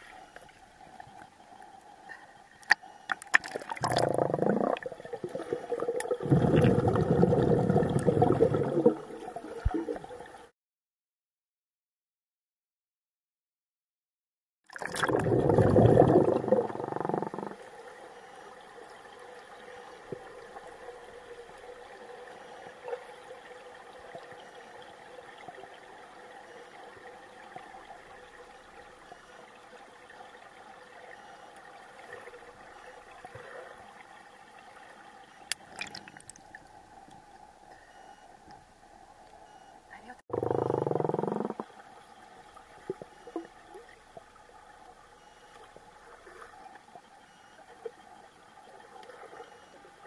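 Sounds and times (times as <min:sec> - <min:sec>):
rush of bubbles underwater: 0:03.2 - 0:10.4, 0:14.7 - 0:17.7
plunge into water: 0:14.7 - 0:16.8, 0:35.5 - 0:36.6.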